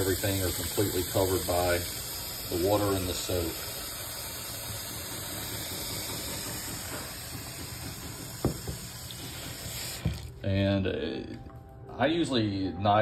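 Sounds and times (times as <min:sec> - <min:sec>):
steady hiss: 0:00.0 - 0:10.4
bowl knocking on stone countertop: 0:05.9 - 0:09.0.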